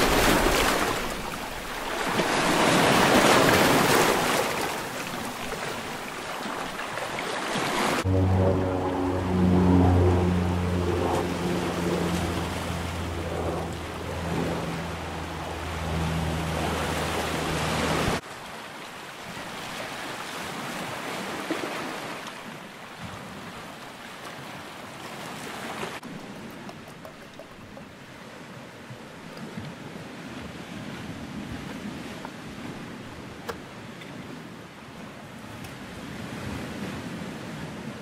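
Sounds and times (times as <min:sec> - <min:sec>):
waves on pebble shore: 0:00.0 - 0:08.1, 0:16.1 - 0:26.8
aircraft engine drone: 0:07.9 - 0:18.2.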